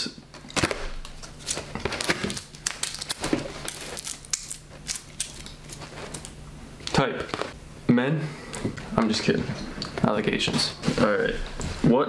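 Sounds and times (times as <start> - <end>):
paper and tape tearing: 1.4 - 6.3.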